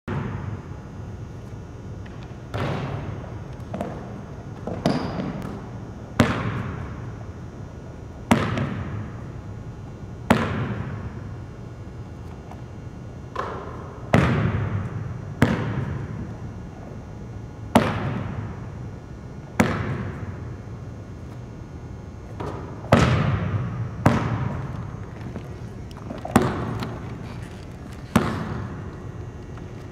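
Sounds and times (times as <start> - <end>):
basketball bouncing on wooden floor: 22.3 - 29.9.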